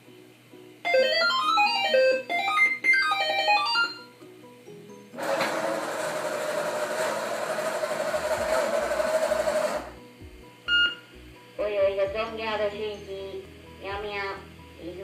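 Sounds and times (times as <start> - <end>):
motor and gears whirring: 5.2 - 10.0.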